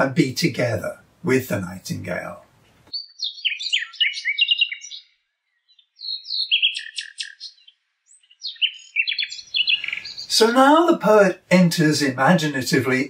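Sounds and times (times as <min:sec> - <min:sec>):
nightingale singing: 0:02.8 - 0:10.8.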